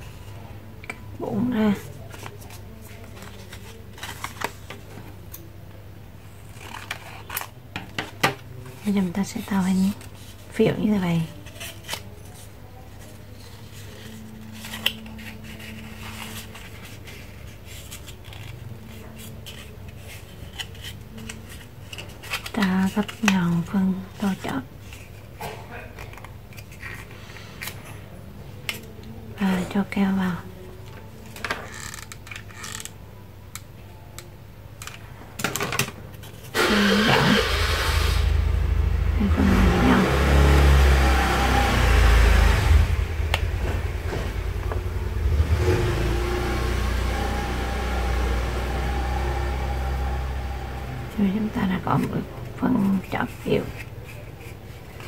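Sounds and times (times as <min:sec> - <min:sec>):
paper rustling: 0:01.7 - 0:05.2, 0:06.3 - 0:29.1, 0:51.4 - 0:55.0
vehicle engine rumbling: 0:38.2 - 0:53.1.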